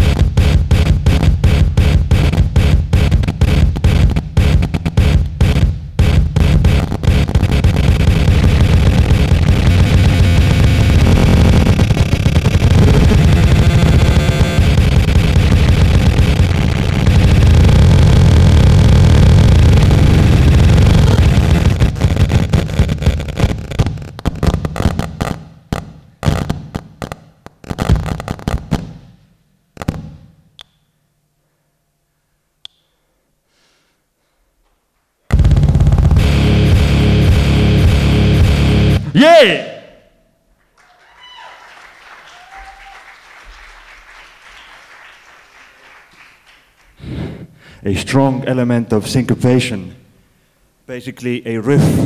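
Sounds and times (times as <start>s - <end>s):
distorted electronic noise: 0.0s - 28.8s, 35.3s - 39.0s
sharp crackles and pops: 0.0s - 29.2s, 29.8s - 30.8s, 35.3s - 38.0s
audience applauding: 40.6s - 47.0s.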